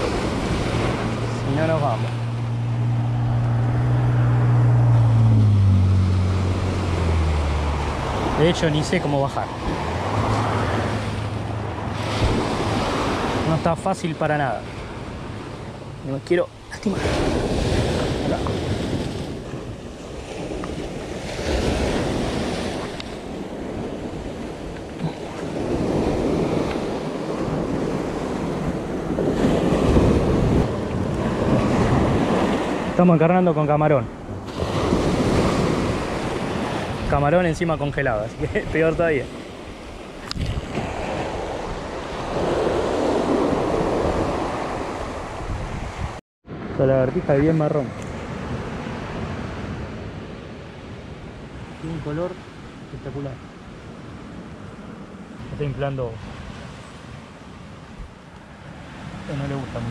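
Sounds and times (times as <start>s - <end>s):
sea waves breaking on rocks: 0.0s - 2.6s, 6.1s - 33.2s, 34.4s - 46.2s
vehicle engine passing by: 0.3s - 13.6s
wind buffeting microphone: 14.6s - 33.0s, 34.1s - 46.8s.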